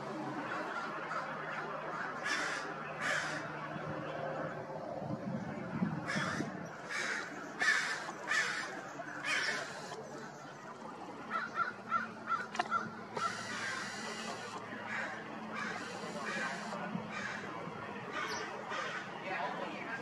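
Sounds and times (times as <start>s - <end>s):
crow cawing: 1.9s - 3.5s, 6.1s - 10.0s, 11.3s - 17.5s, 18.1s - 19.1s.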